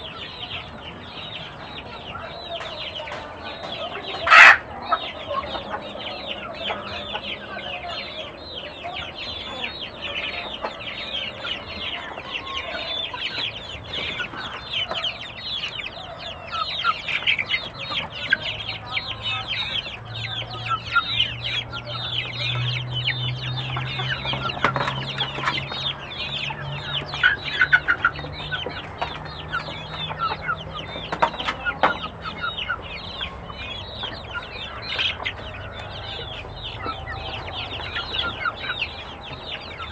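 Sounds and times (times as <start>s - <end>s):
chickens clucking: 0.0s - 39.9s
chicks peeping: 0.0s - 39.9s.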